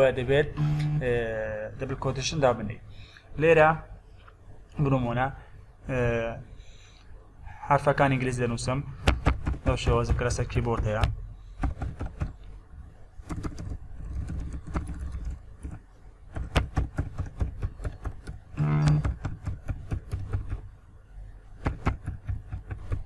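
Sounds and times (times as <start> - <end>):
keyboard typing: 9.1 - 12.4, 13.2 - 20.6.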